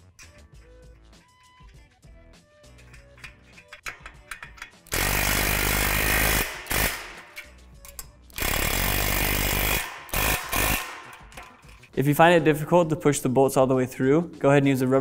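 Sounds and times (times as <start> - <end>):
impact driver running bolts: 2.9 - 11.8.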